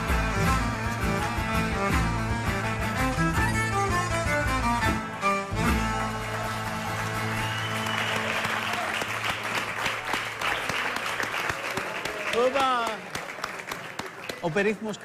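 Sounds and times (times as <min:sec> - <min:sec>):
violin with band playing: 0:00.0 - 0:08.3
audience applauding: 0:05.4 - 0:15.0.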